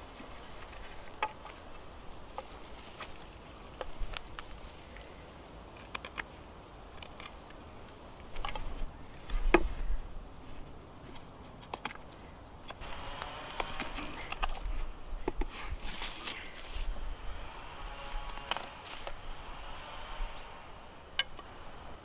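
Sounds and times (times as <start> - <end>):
knife scraping wood: 12.8 - 21.6.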